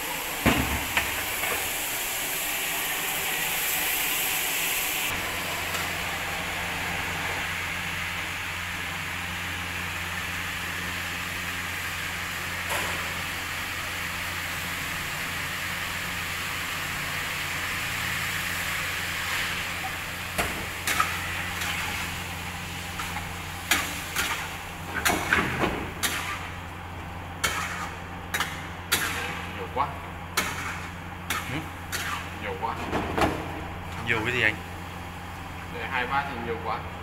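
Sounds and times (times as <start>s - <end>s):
meat sizzling in a wok: 0.0s - 24.9s.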